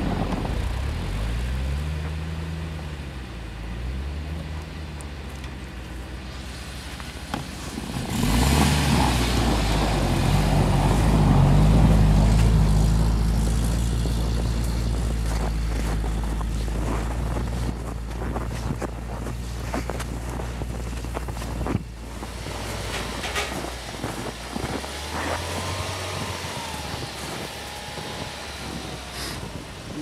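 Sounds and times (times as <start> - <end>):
tyres churning snow: 0.0 - 30.0
engine revving: 7.6 - 30.0.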